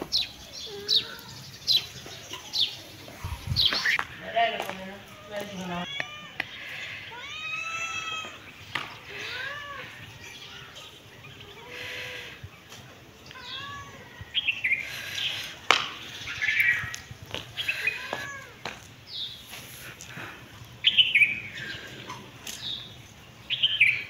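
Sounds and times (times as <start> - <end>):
cat meowing: 13.3 - 14.3.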